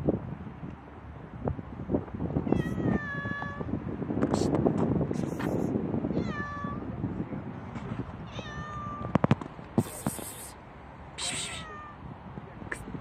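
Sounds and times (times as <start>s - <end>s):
cat meowing: 2.5s - 3.7s, 6.2s - 6.8s, 8.3s - 9.2s, 11.2s - 12.0s.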